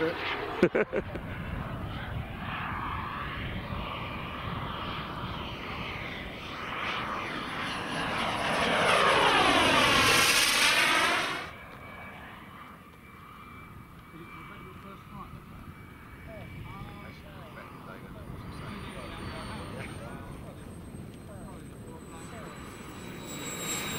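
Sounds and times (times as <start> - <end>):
model jet turbine whine: 0.0 - 23.9.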